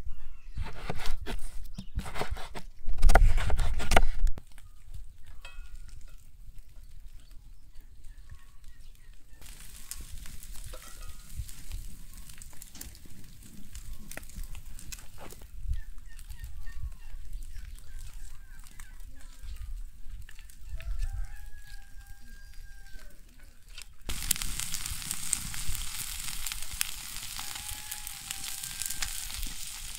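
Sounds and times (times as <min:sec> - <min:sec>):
meat sizzling over charcoal: 0:08.1 - 0:23.2, 0:24.0 - 0:29.9.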